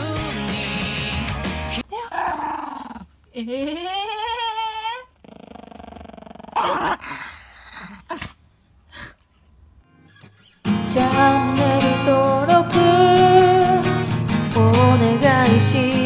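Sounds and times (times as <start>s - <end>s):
dog whining cry: 1.8s - 8.4s
small dog growling: 2.0s - 8.4s
dog yapping: 6.5s - 8.4s.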